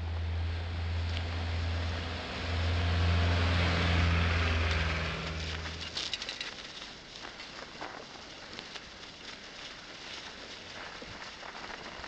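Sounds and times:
bicycle tyres hissing on snow: 5.3s - 12.0s.

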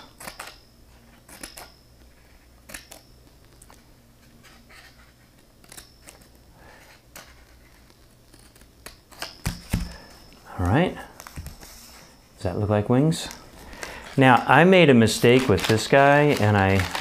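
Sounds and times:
scissors snipping paper: 15.2s - 17.0s.

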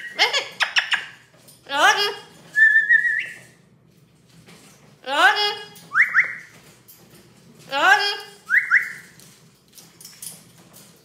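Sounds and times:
parrot calling and whistling: 0.0s - 1.2s, 2.5s - 3.5s, 5.9s - 6.5s, 8.5s - 9.2s.

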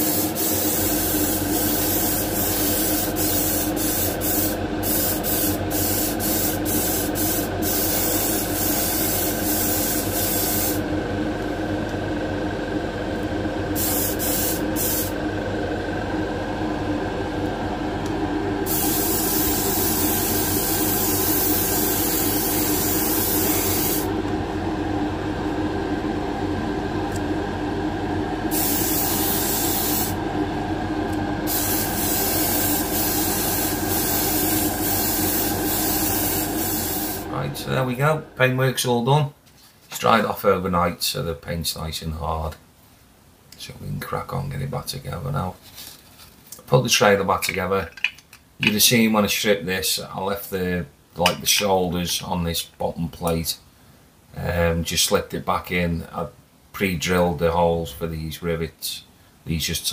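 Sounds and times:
spray gun hissing: 0.0s - 10.9s, 13.7s - 15.2s, 18.6s - 24.1s, 28.5s - 30.2s, 31.5s - 37.3s
steady hum: 0.0s - 42.2s.

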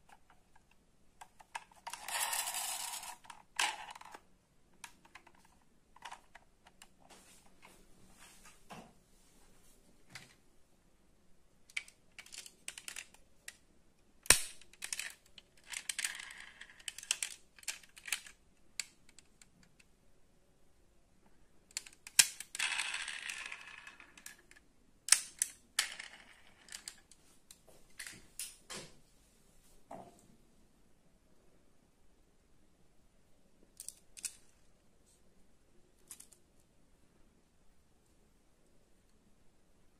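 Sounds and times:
metal model car clicks and clacks: 14.2s - 19.8s.

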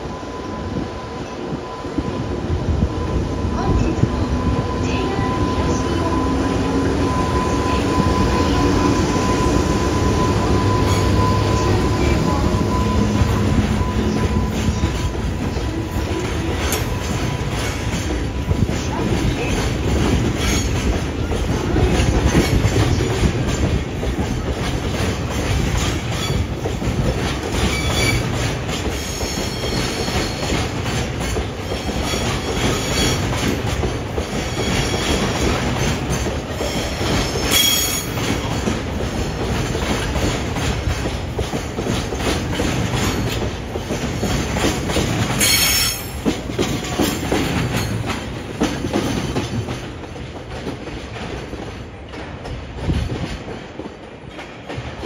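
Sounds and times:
train wheels rumbling on rail: 0.0s - 55.0s
high thin wheel squeals: 45.4s - 46.2s.

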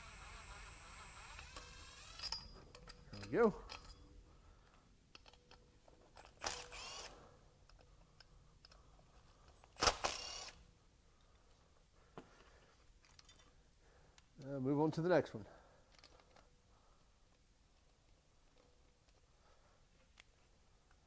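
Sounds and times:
cordless drill motor whine: 0.0s - 2.4s, 6.5s - 7.1s, 10.1s - 10.6s.

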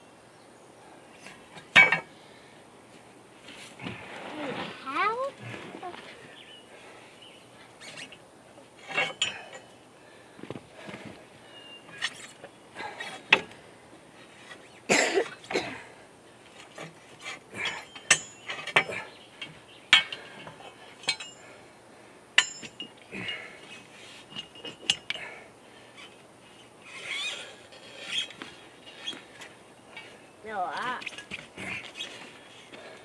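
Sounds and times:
hand tools striking metal: 8.9s - 9.7s, 17.6s - 21.5s, 22.4s - 23.5s.

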